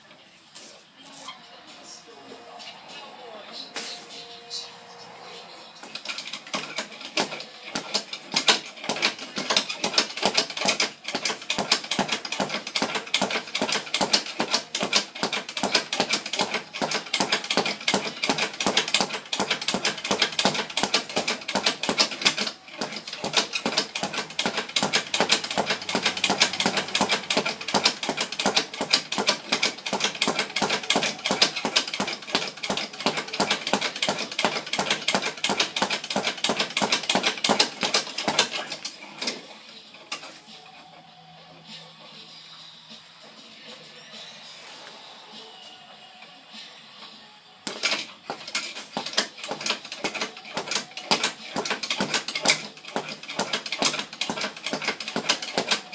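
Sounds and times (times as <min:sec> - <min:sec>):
speed bag punched rapidly: 0:05.9 - 0:39.0, 0:47.7 - 0:55.9.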